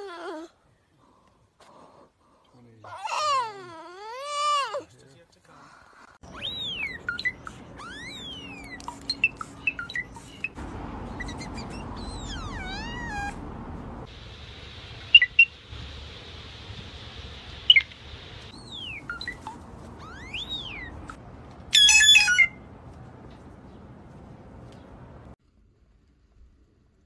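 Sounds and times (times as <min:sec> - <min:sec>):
blue jay calls: 0:06.2 - 0:14.0, 0:15.0 - 0:15.6, 0:17.6 - 0:22.6.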